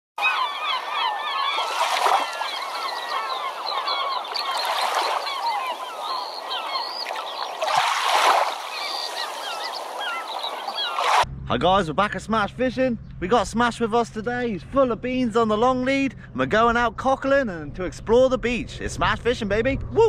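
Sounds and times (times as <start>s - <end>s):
flock of birds calling: 0.2s - 11.2s.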